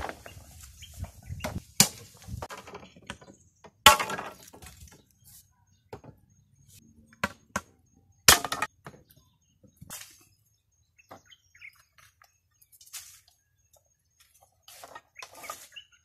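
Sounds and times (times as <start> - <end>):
bamboo poles knocking together: 1.4 - 5.0, 8.3 - 9.0.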